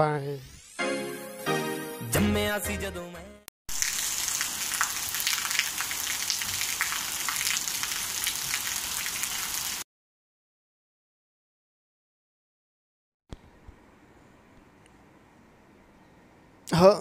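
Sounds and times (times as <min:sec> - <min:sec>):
rain on wet brick paving: 0:03.7 - 0:09.8.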